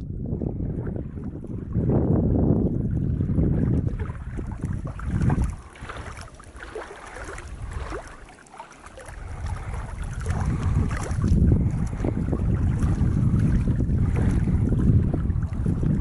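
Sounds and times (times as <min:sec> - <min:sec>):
lake water lapping: 0:00.0 - 0:16.0
wind buffeting microphone: 0:00.0 - 0:16.0.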